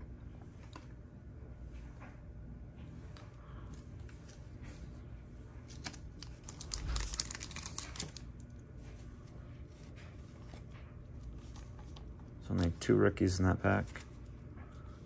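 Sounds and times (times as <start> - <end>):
wrapper crinkling: 5.7 - 8.3.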